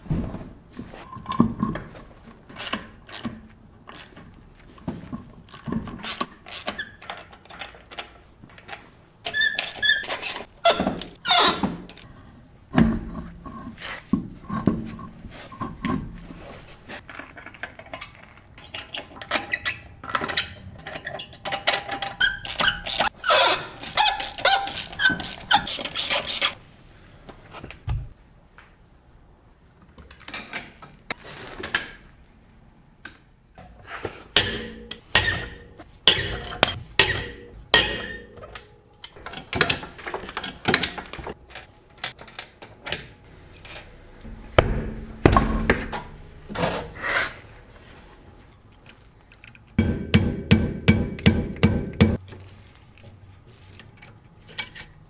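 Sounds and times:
tools clanking on metal: 33.6 - 47.0, 53.8 - 55.0
heavy knocks: 44.3 - 46.6
low thud: 44.3 - 46.6.

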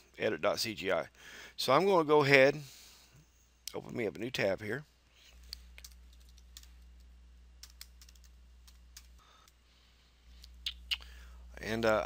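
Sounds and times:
low electrical hum: 0.0 - 12.0
keyboard keys clicking: 7.6 - 9.2.

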